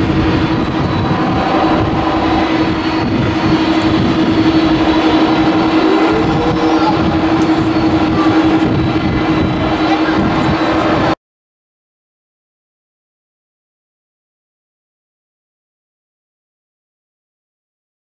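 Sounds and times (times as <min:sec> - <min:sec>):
jet engines idling: 0:00.0 - 0:11.2
short rising whine: 0:00.0 - 0:11.2.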